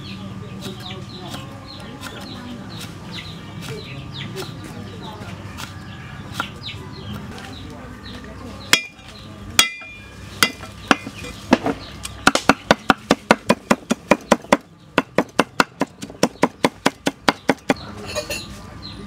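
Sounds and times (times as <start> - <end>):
cleaver chopping on wooden block: 9.6 - 17.8.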